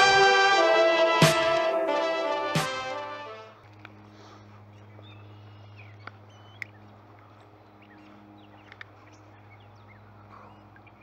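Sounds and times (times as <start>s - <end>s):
bird chirps: 4.7s - 6.9s.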